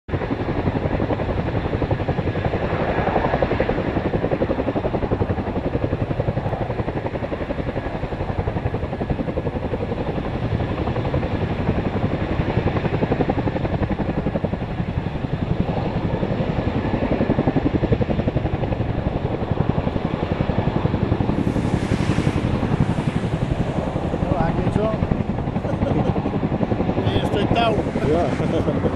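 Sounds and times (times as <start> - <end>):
helicopter rotors beating: 0.1 - 28.9.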